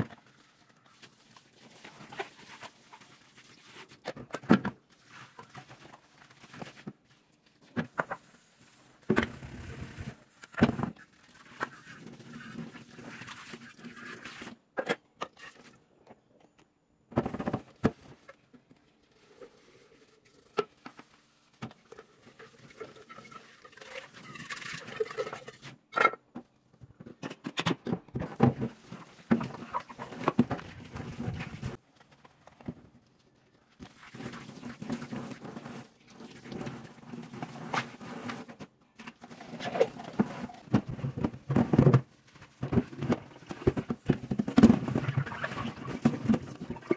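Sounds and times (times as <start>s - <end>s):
sponge scrubbing: 28.7s - 31.8s.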